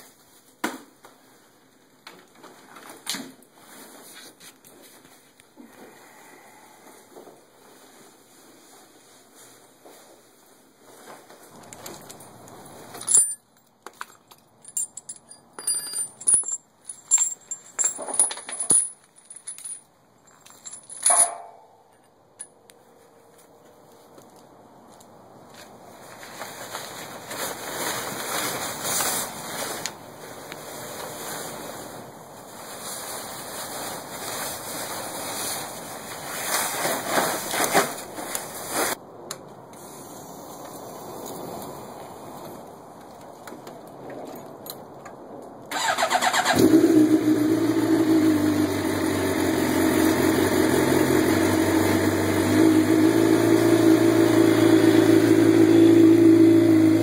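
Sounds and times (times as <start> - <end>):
keys and gear clicking and jingling: 11.6 - 22.5
fabric cover rustling: 25.8 - 39.0.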